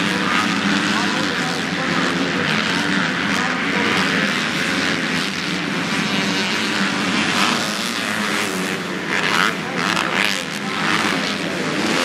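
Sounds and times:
motocross bikes racing: 0.0s - 12.0s.

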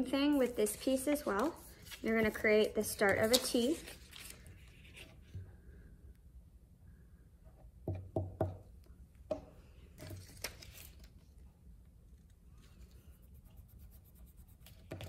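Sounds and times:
paper rustling: 0.2s - 5.3s, 10.0s - 11.4s.

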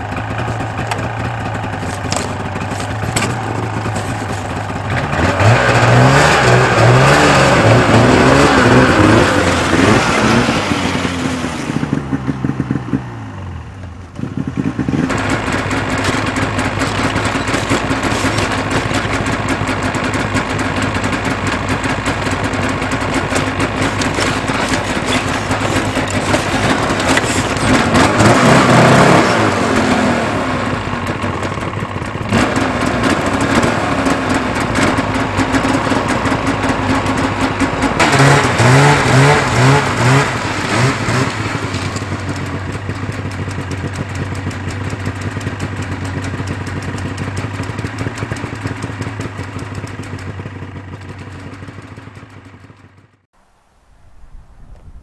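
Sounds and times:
snowmobile engine revving: 0.0s - 49.3s
snowmobile idling: 0.0s - 53.3s.

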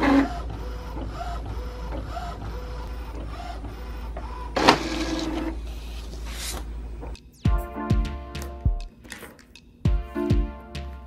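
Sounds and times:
printer mechanical strokes: 0.0s - 6.3s
printer low hum: 0.0s - 8.3s.

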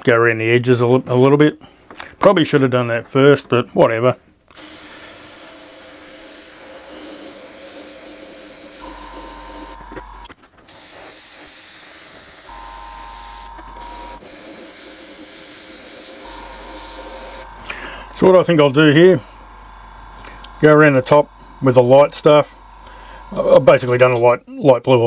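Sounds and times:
airbrush spraying hiss: 4.6s - 9.8s, 10.7s - 17.5s
low hum: 16.2s - 23.7s.

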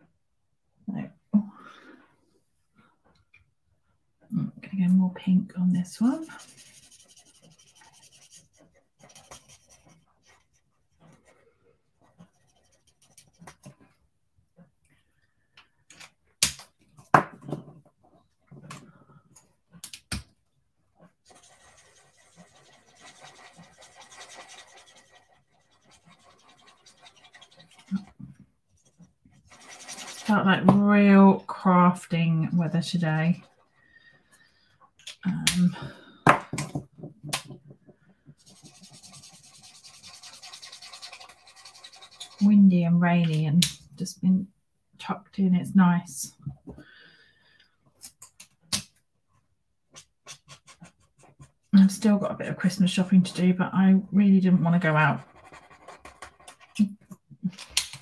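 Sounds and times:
marker tip scratching on card: 6.2s - 11.2s, 21.3s - 28.1s, 38.4s - 42.4s.

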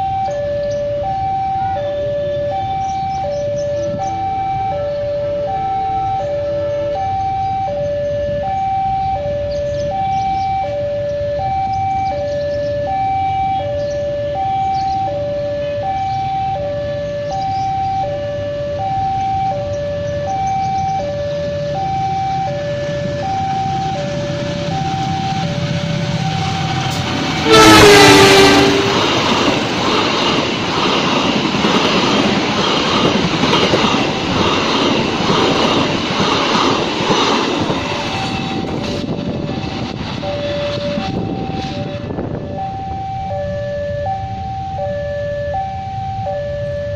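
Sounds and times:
locomotive horn blast: 0.0s - 11.7s, 12.8s - 29.8s
level crossing two-tone alarm: 0.0s - 30.5s, 35.6s - 46.9s
train rumbling and rattling: 0.0s - 43.6s.

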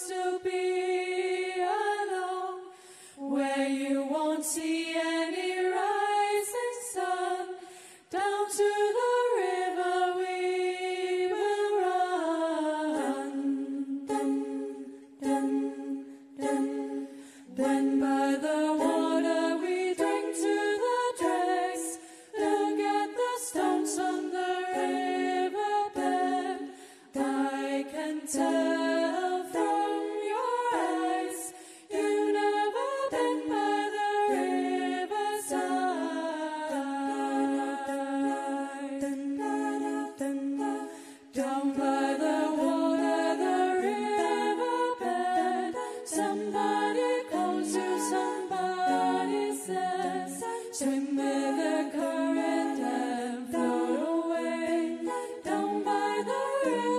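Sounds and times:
women singing a cappella in harmony: 0.0s - 56.9s.

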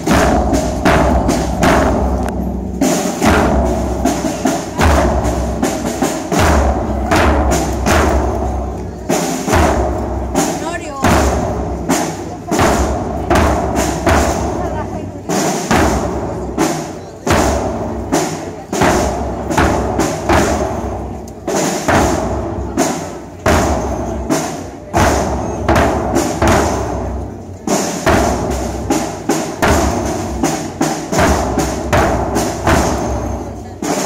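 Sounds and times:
large drums beaten with sticks: 0.0s - 34.0s.

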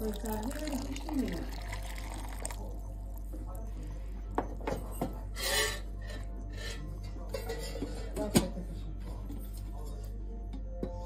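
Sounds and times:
scraping on countertop: 5.4s - 6.8s.

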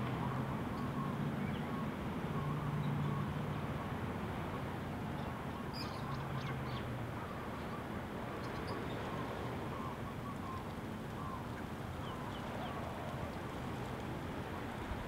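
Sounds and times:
small birds chirping: 5.2s - 6.9s, 7.5s - 14.0s.

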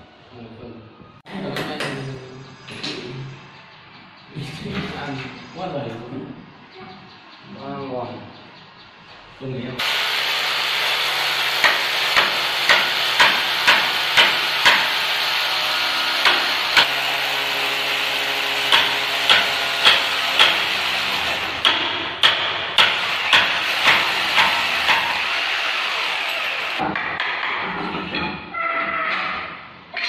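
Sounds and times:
electric drill boring into wall: 9.8s - 21.6s, 22.8s - 26.8s
sharp knocks: 11.6s - 15.0s, 18.7s - 20.8s, 21.6s - 25.2s.

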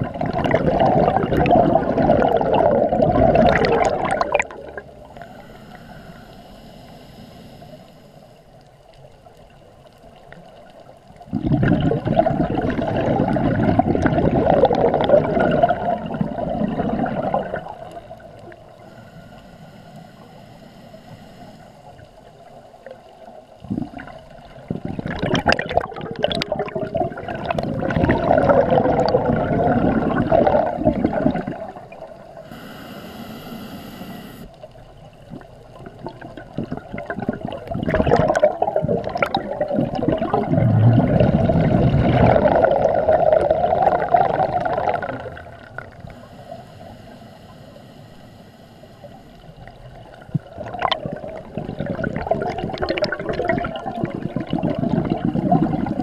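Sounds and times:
diver exhaling bubbles underwater: 0.0s - 6.2s, 11.2s - 19.2s, 23.6s - 34.4s, 35.2s - 46.6s, 49.6s - 56.0s
diver inhaling through regulator: 4.8s - 8.5s, 18.7s - 21.9s, 32.4s - 34.5s, 43.8s - 49.3s.

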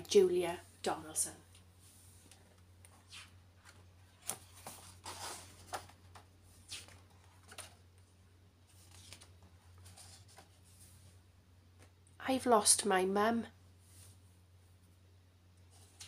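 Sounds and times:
low steady hum: 0.0s - 16.0s
book pages turning: 2.1s - 8.0s, 8.6s - 10.8s, 15.7s - 16.0s.

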